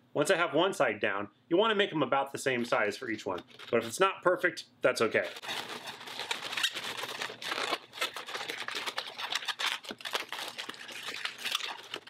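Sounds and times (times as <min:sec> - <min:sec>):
balloons scraping and squeaking: 0:02.8 - 0:04.0, 0:05.1 - 0:12.0.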